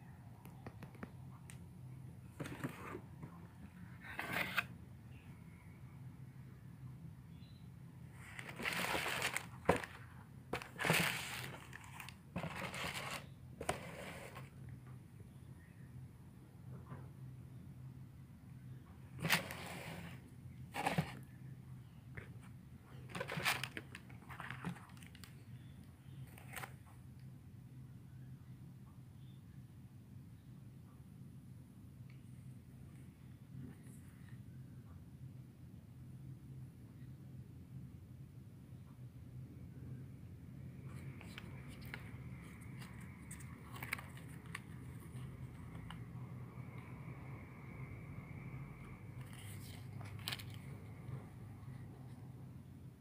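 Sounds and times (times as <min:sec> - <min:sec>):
low steady hum: 0:00.0 - 0:53.0
cardboard rustling scrapes: 0:04.0 - 0:04.7, 0:08.2 - 0:10.0, 0:10.6 - 0:14.5, 0:19.2 - 0:21.2, 0:23.1 - 0:25.2
paper wrapping rustling: 0:08.2 - 0:14.5, 0:23.1 - 0:25.3, 0:41.1 - 0:45.3, 0:49.2 - 0:50.7.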